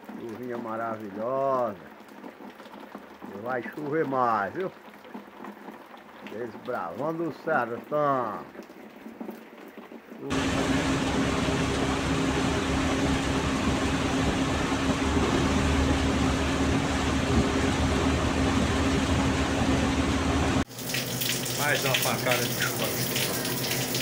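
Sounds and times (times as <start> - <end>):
rain on windshield: 0.0 - 15.8, 20.6 - 24.0
vehicle engine and tyre noise: 10.3 - 20.6.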